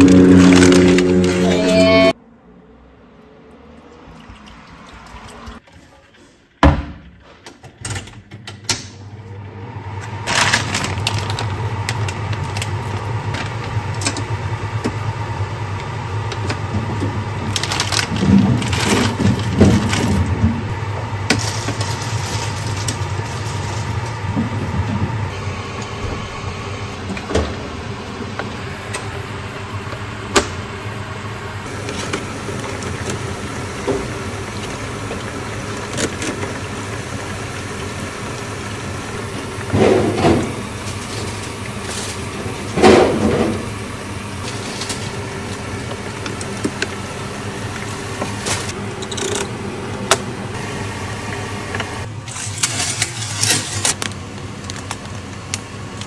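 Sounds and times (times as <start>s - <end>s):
low hum: 0.0s - 3.3s
oil sizzling in deep fryer: 10.2s - 49.0s, 49.6s - 56.0s.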